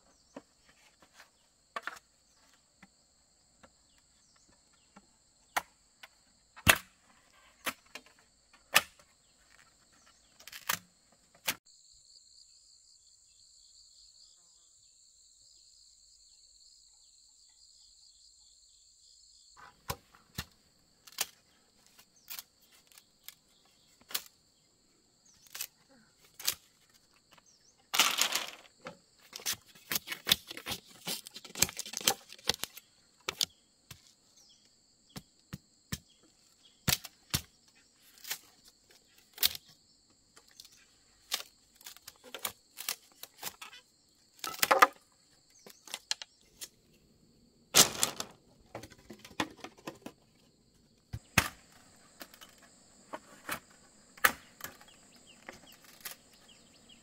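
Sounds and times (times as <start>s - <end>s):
insects buzzing: 0.0s - 57.0s
bamboo tapping and knocking: 0.3s - 2.9s, 25.4s - 34.1s, 44.4s - 45.0s, 47.8s - 50.5s.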